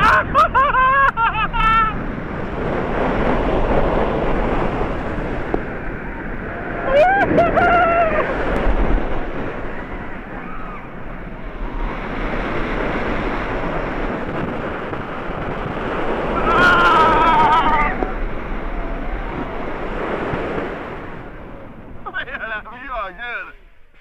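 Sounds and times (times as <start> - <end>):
roller coaster rumble: 0.0 - 24.0
wind on microphone: 0.0 - 24.0
rider screaming: 6.5 - 8.4, 16.3 - 19.6.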